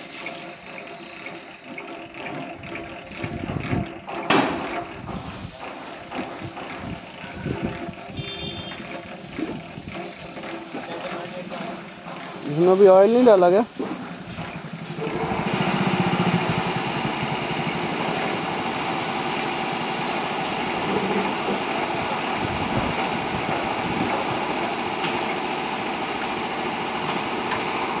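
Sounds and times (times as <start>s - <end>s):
crank mechanism grinding and squeaking: 0.0s - 19.2s.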